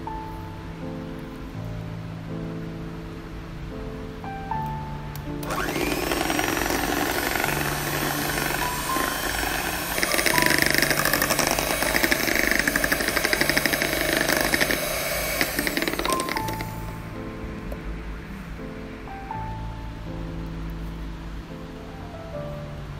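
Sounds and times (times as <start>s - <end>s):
background music: 0.0s - 22.9s
electric hand mixer whirring: 5.4s - 17.0s.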